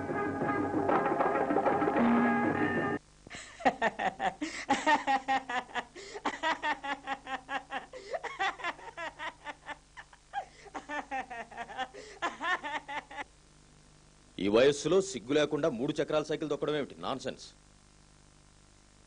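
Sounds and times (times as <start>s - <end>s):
person giggling: 3.3s - 13.3s.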